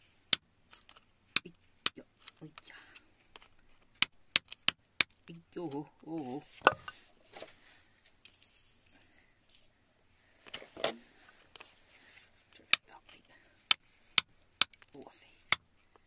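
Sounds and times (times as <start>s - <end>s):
digging tool tapping on rock: 3.4s - 5.3s, 13.7s - 15.7s.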